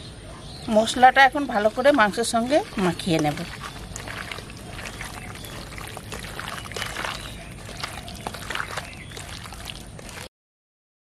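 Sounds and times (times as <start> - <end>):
wet squelching and slapping: 2.6 - 10.3.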